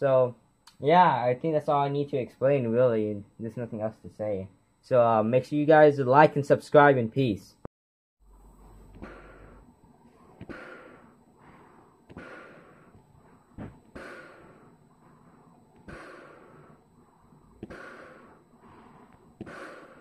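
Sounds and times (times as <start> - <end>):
breathing through gas mask: 8.3 - 20.0.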